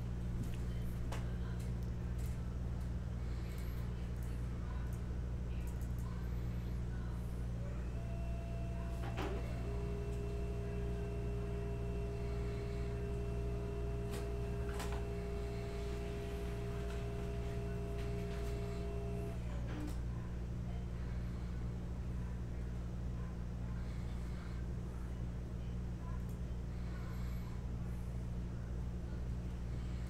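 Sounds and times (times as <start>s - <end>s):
constant low hum: 0.0s - 30.0s
laser printer whine: 7.6s - 19.5s.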